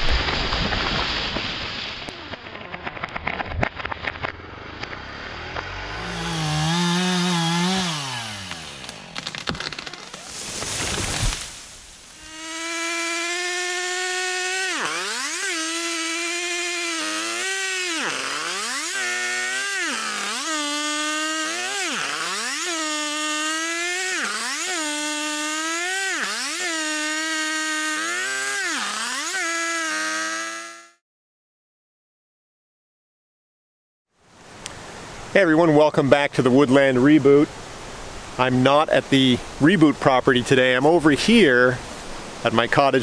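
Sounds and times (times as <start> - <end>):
chainsaw cutting a log: 0.0 - 31.0.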